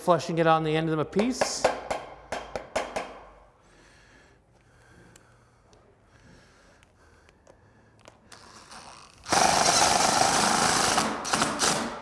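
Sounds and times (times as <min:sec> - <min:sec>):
impact driver hammering: 0:01.2 - 0:03.3, 0:09.3 - 0:12.0.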